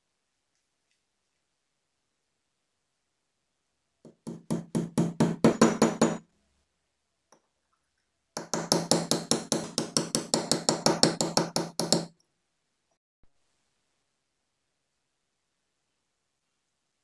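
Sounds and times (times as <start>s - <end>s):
hammer tapping a steel punch: 4.1s - 6.2s, 8.4s - 12.1s.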